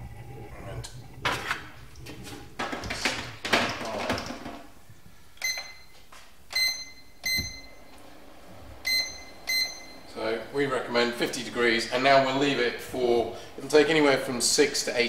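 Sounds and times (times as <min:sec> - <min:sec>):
control panel beeps: 0:05.4 - 0:05.9, 0:06.5 - 0:07.8, 0:08.8 - 0:10.0.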